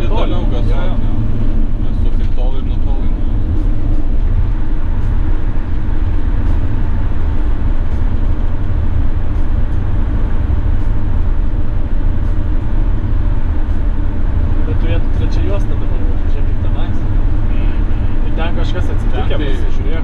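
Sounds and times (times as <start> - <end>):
engine and road rumble: 0.0 - 20.0.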